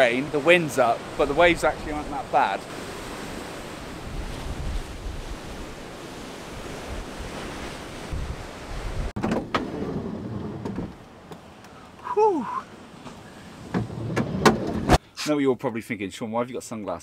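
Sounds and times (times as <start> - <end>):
surf breaking on rocks: 0.0 - 9.7
wind buffeting microphone: 1.0 - 10.0.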